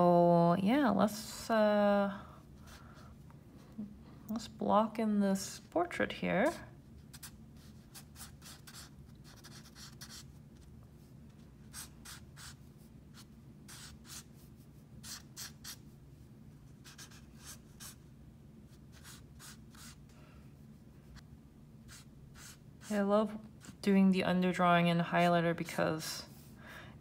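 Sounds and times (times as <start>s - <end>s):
pen scratching on paper: 7.1s - 10.7s, 11.6s - 14.4s, 16.8s - 18.0s, 18.9s - 20.0s.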